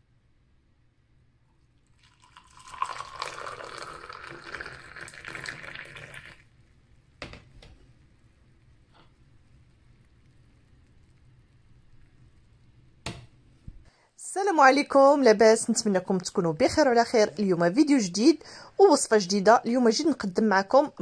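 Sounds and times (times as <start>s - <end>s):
tea pouring into glass: 1.8s - 6.6s.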